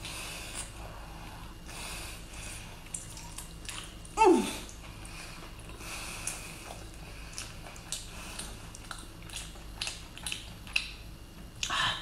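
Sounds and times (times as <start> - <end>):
wet squishes and clicks of food: 2.8 - 11.8.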